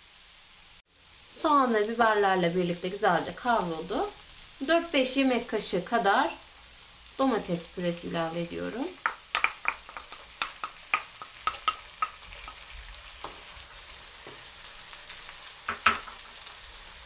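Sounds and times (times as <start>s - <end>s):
vegetables sizzling in oil: 0.0s - 17.0s
spoon knocking against pan: 9.0s - 12.6s, 15.7s - 16.2s
wooden spoon clicking and scraping: 9.0s - 12.6s.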